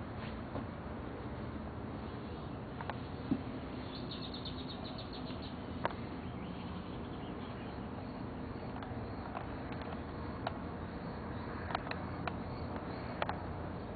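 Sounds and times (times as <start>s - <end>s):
low background hum: 0.0s - 13.9s
bird trilling high chirps: 3.8s - 5.6s
faint clicks: 11.6s - 13.4s.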